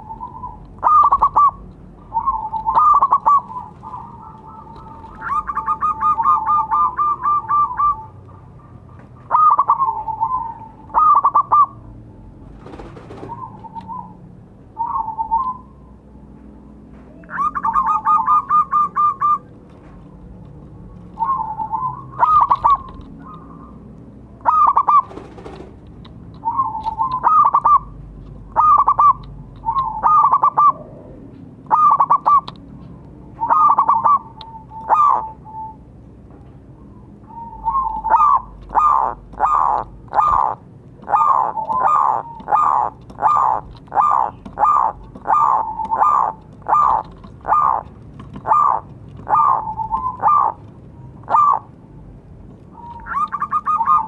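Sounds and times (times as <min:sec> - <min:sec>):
dove cooing: 0:00.0 - 0:15.9, 0:17.1 - 0:19.5, 0:20.8 - 0:25.8, 0:26.4 - 0:32.5, 0:33.3 - 0:35.9, 0:36.8 - 0:51.8, 0:52.7 - 0:54.0.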